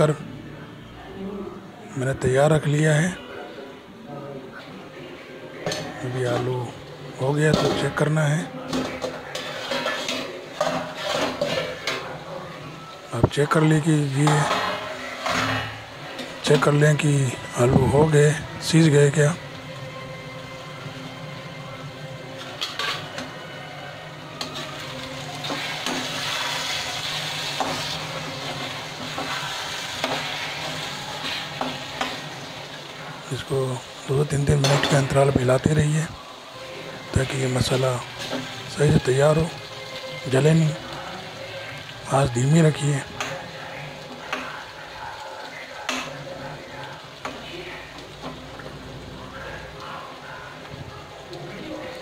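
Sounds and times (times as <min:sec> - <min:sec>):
potatoes sizzling in a pan: 0:05.7 - 0:52.0
metal spatula scraping a pan: 0:08.7 - 0:12.2, 0:14.0 - 0:18.0, 0:22.4 - 0:23.4, 0:24.3 - 0:33.2, 0:34.3 - 0:35.3, 0:37.2 - 0:40.1.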